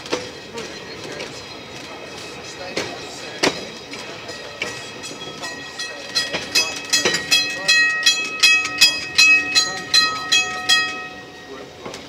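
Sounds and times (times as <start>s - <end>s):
train wheels on track: 0.0s - 12.0s
level crossing alarm bell ringing: 4.0s - 11.8s.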